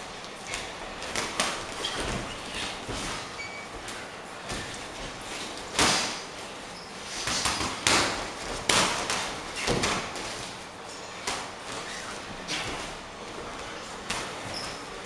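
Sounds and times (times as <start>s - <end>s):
boxing gloves punching: 0.3s - 3.3s, 7.2s - 10.5s.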